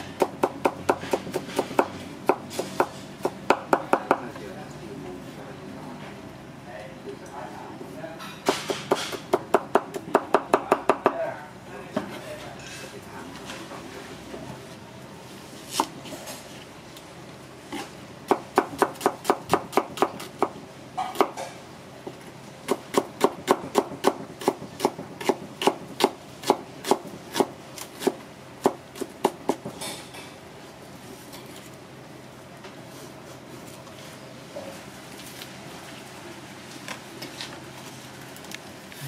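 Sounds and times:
knife chopping on cutting board: 0:00.2 - 0:04.2, 0:17.8 - 0:21.5.

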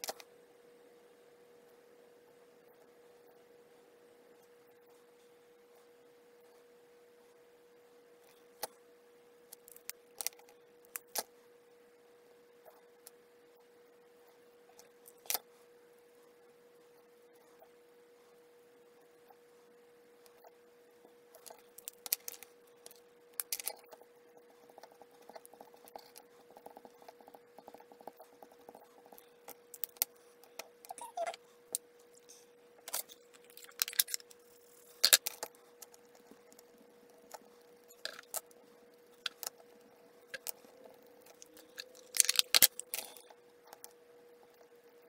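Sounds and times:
faint steady tone: 0:00.0 - 0:45.0
marker pens and card handled: 0:39.2 - 0:43.2.

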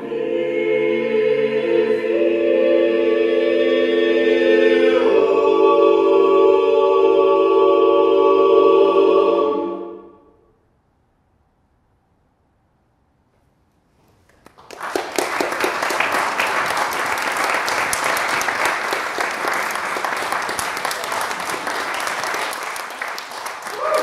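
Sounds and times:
audience applause: 0:14.3 - 0:24.0.

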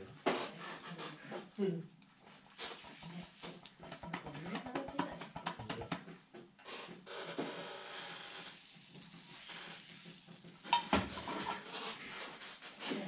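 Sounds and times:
utensil scraping a pan: 0:06.7 - 0:13.0
egg sizzling in a frying pan: 0:07.4 - 0:12.8.

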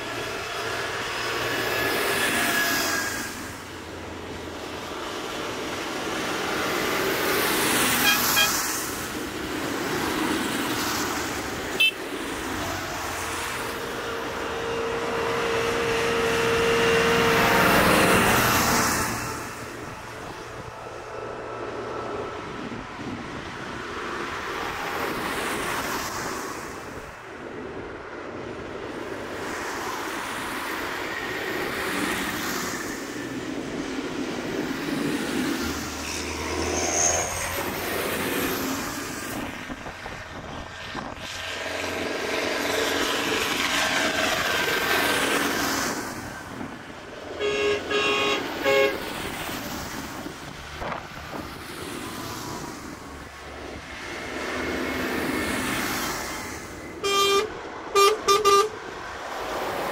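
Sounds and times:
tyre noise on wet road: 0:00.0 - 0:20.7, 0:24.6 - 0:27.2, 0:29.5 - 0:59.9
tractors driving past: 0:00.0 - 0:27.5, 0:29.8 - 0:59.9
horn toots: 0:07.9 - 0:08.7, 0:11.8 - 0:12.0, 0:47.4 - 0:49.0, 0:57.0 - 0:58.8.

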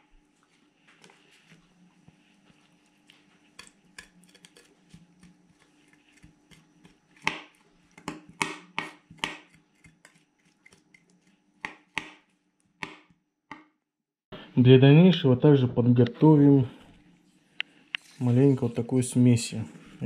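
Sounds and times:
knife scraping fish belly: 0:03.4 - 0:08.0, 0:08.9 - 0:11.4.

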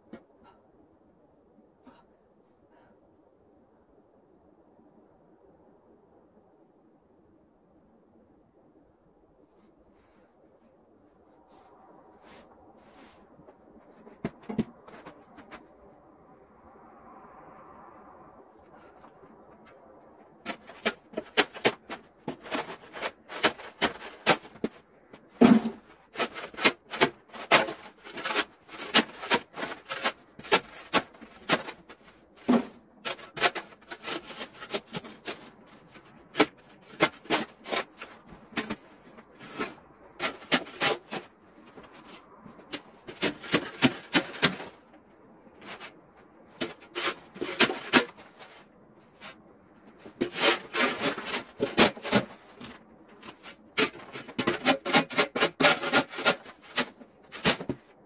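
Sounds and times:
shovel scraping snow: 0:20.5 - 0:24.8, 0:25.4 - 0:38.8, 0:50.0 - 0:57.8.

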